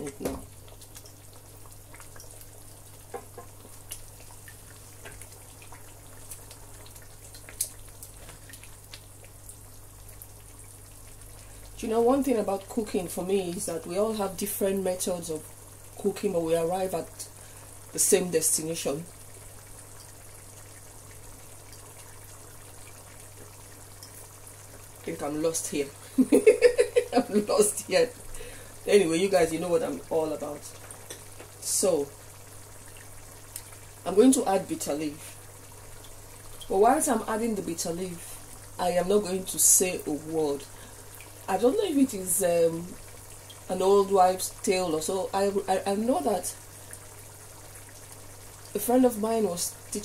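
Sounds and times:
soup bubbling in a pot: 0.0 - 50.0
tiny ticks: 7.3 - 9.1.

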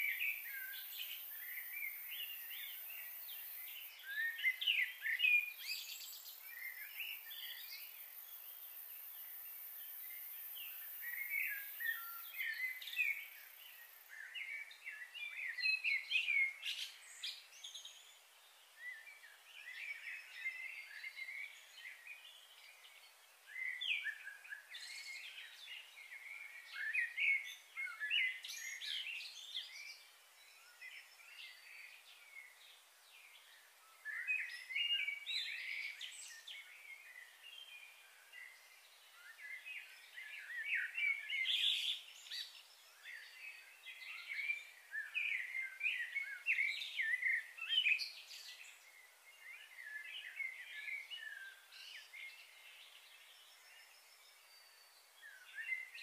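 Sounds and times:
birds chirping and singing: 0.0 - 18.2, 33.3 - 56.0
faint high hiss: 0.0 - 56.0.

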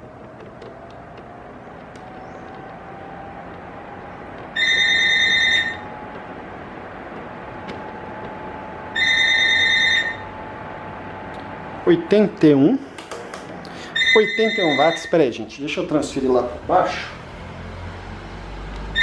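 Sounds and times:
electric fan running: 0.0 - 19.0
high electronic beeps: 9.0 - 10.3, 13.9 - 15.2.

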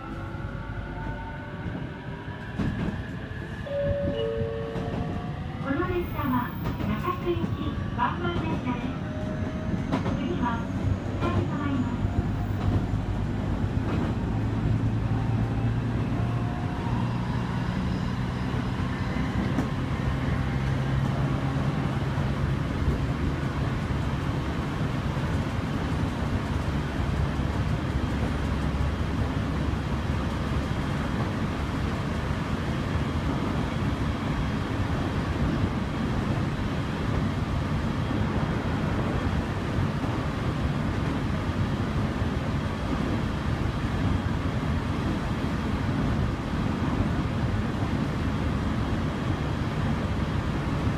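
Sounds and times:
train wheels rumbling on rail: 0.0 - 50.9.

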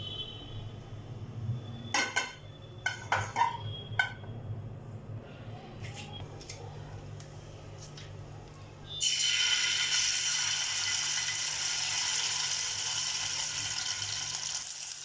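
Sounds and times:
metal cookware clinking: 1.9 - 4.3.

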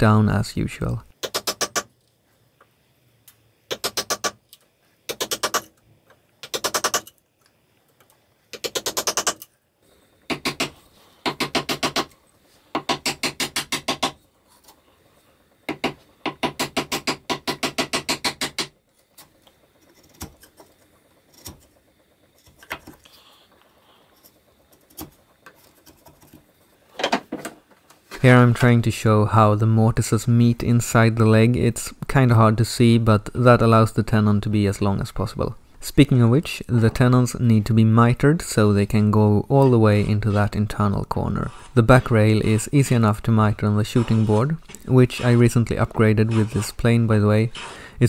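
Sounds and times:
mallet striking chisel into wood: 12.8 - 14.2.

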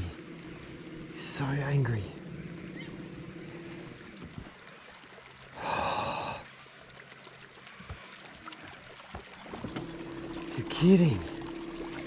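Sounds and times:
faint water sounds: 0.0 - 12.0
person sighing: 5.6 - 6.5.

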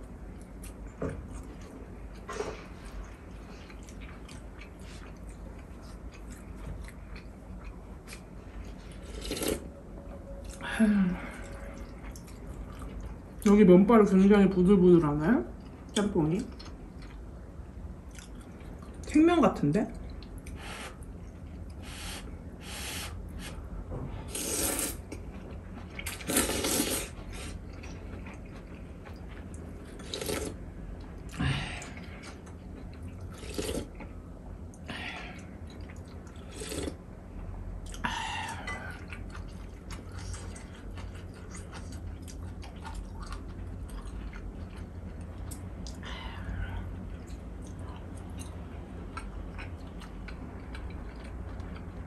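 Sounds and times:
person slurping noodles: 9.0 - 9.7, 24.3 - 25.0, 26.1 - 27.6, 30.0 - 30.6, 33.4 - 33.9, 36.5 - 37.0.

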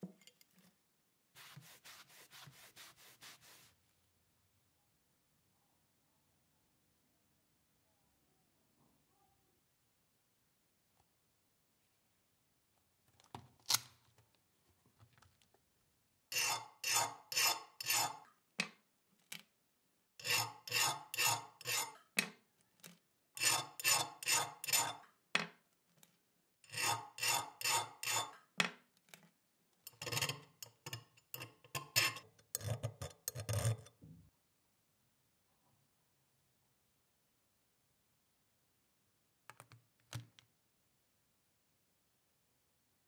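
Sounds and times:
file scraping steel blade: 16.3 - 18.3, 20.2 - 22.2, 23.4 - 25.1, 26.7 - 28.5, 29.9 - 33.9.

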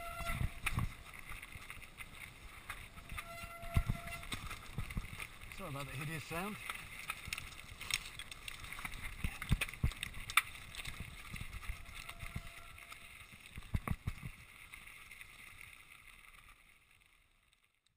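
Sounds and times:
wind on microphone: 0.0 - 1.0, 3.0 - 5.2
bike knocking on rocks: 0.0 - 14.4
bike rattling: 0.0 - 17.0
bike tyres crunching over stones: 0.0 - 17.9.

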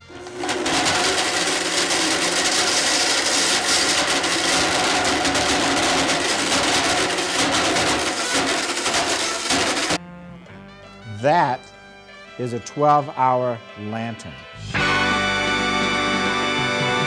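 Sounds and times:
blender motor whirring: 0.0 - 10.0.

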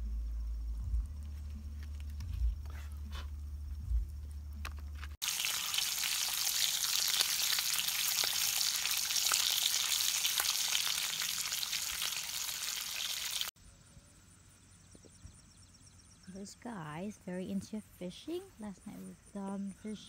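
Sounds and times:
low hum: 0.0 - 5.2
bacon sizzling in a pan: 5.2 - 13.5.

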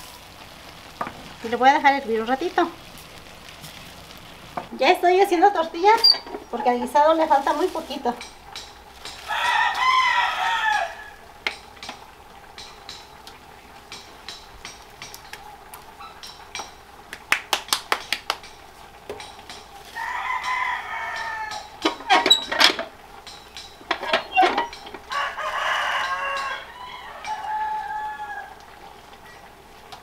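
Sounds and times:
rooster crowing: 9.2 - 11.3, 19.9 - 22.1, 24.2 - 29.4
tortilla press clacking: 16.2 - 25.1.

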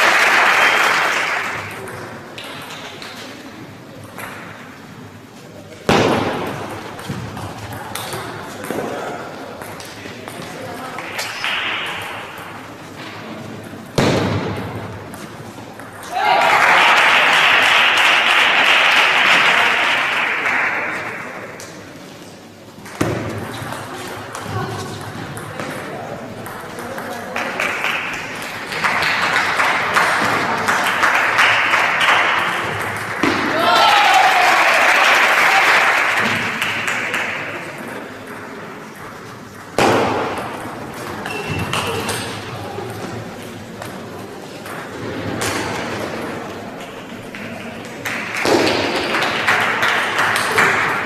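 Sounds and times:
spectators applauding: 0.0 - 1.8, 16.1 - 21.3, 27.4 - 33.0, 33.6 - 37.7, 47.4 - 51.0.

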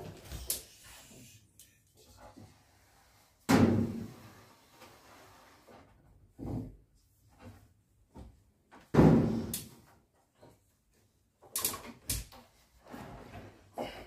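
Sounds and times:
loud wooden thump: 8.9 - 9.5.

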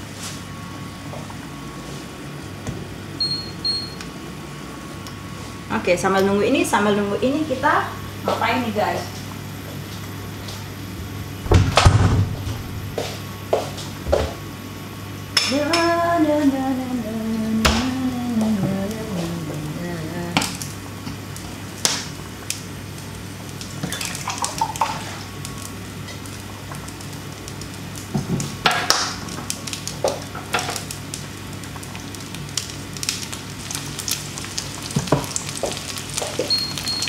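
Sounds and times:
food sizzling in a pan: 20.4 - 37.0.

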